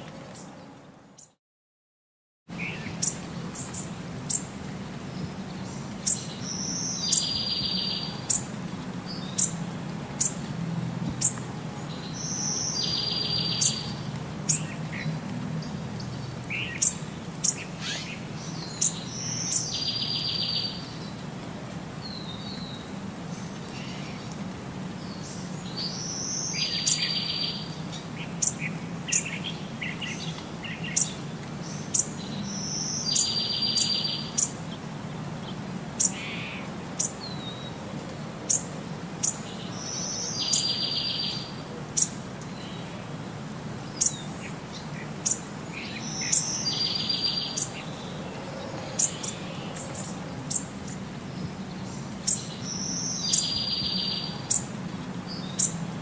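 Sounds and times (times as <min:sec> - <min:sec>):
birds chirping and singing: 0:25.1 - 0:34.6, 0:38.5 - 0:42.9, 0:43.9 - 0:54.7.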